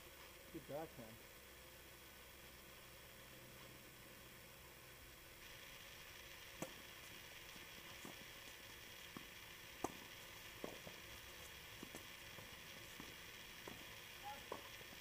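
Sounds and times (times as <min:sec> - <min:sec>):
steady hiss: 0:00.0 - 0:15.0
tennis balls struck by rackets: 0:06.5 - 0:06.8, 0:09.1 - 0:11.0, 0:11.8 - 0:15.0.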